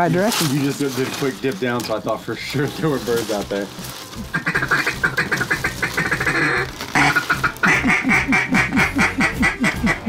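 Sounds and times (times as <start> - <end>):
duck call quacking: 4.3 - 10.0.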